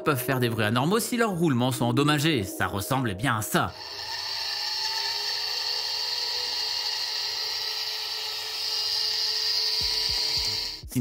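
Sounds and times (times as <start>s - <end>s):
computer fan high-pitched whine: 3.7s - 10.8s.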